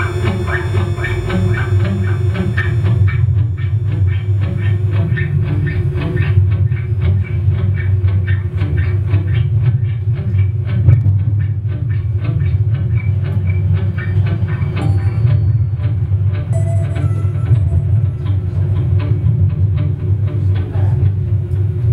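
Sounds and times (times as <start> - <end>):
fast clicking pulse: 0.0 - 9.4
loud low drone: 0.0 - 21.9.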